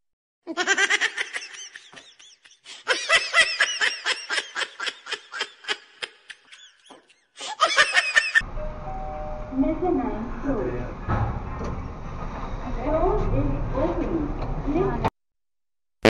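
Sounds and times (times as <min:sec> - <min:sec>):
person giggling: 0:00.5 - 0:08.4.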